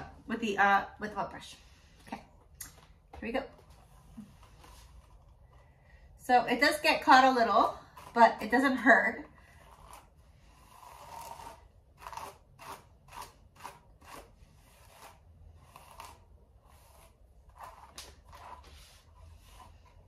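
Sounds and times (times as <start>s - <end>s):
brush swishing through hair: 15.8s - 20.0s.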